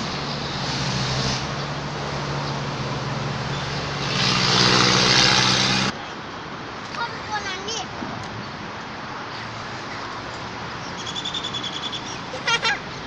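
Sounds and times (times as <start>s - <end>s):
motor engine droning: 0.0s - 5.9s.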